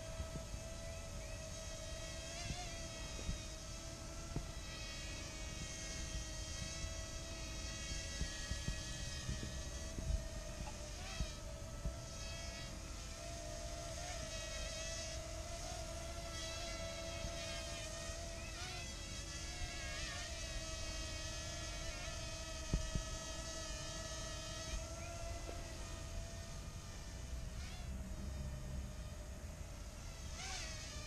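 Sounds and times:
drone propellers whining: 0.2s - 13.2s.

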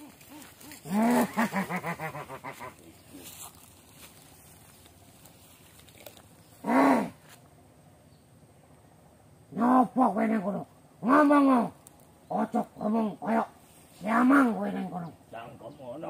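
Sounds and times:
loud whooping calls: 0.0s - 3.3s, 6.5s - 7.4s, 9.5s - 16.0s.

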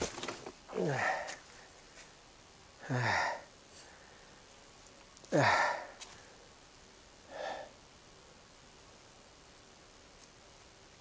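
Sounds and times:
man sighing: 0.7s - 1.4s, 2.8s - 3.5s, 5.2s - 6.0s
soft breath: 2.8s - 4.6s, 7.2s - 7.8s.

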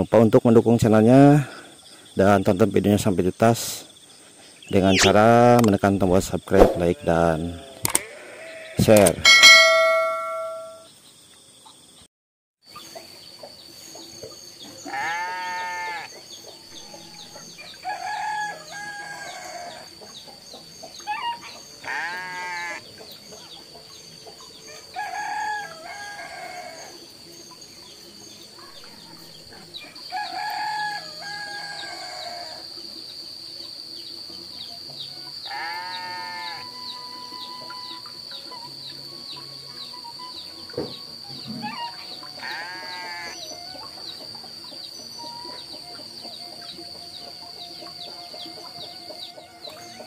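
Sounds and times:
roosters crowing: 6.6s - 10.8s, 14.8s - 20.0s, 21.0s - 22.8s, 24.6s - 27.0s, 29.8s - 32.7s, 35.3s - 38.5s, 41.1s - 44.2s
goats bleating: 6.8s - 8.8s, 14.8s - 16.1s, 21.8s - 22.8s, 35.5s - 36.6s, 42.4s - 43.4s
steady high tone: 9.2s - 10.9s.

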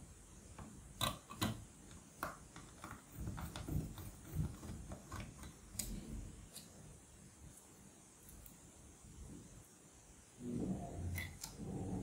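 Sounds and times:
screwdriver scraping plastic: 2.6s - 5.6s.

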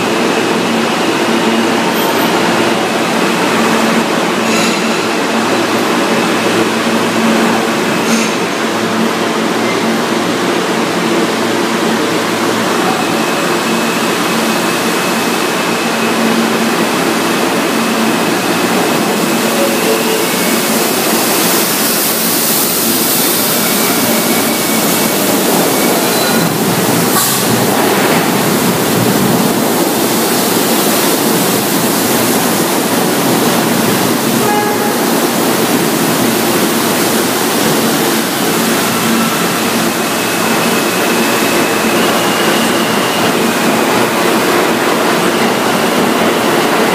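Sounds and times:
subway train wheels on rails: 0.0s - 46.9s.

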